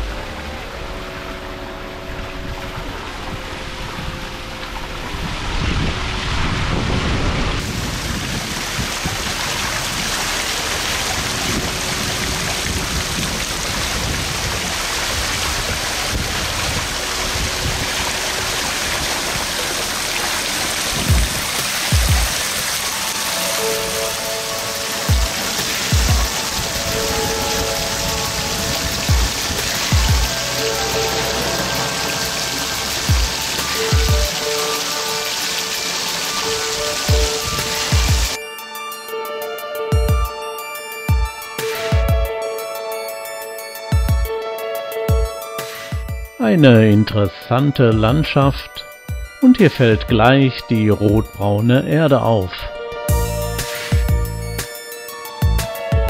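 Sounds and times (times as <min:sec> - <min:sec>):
fountain water splashing: 0:00.0 - 0:38.9, 0:53.1 - 0:55.7
rain-like hiss: 0:00.0 - 0:44.0, 0:53.1 - 0:56.0
music with held notes: 0:00.0 - 0:56.0
deep booming beats: 0:20.9 - 0:22.4, 0:25.1 - 0:34.5, 0:37.1 - 0:38.4, 0:53.1 - 0:54.7, 0:55.4 - 0:56.0.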